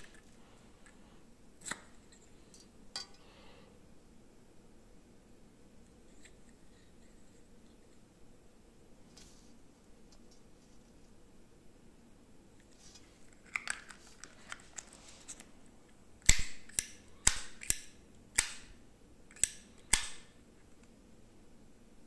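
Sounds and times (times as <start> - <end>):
lighter clicking and handling: 16.2 - 18.7.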